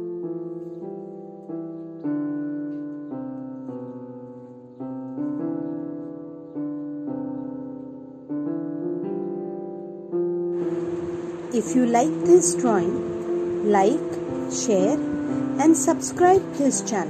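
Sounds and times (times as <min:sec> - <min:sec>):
slow piano tune: 0:00.0 - 0:17.0.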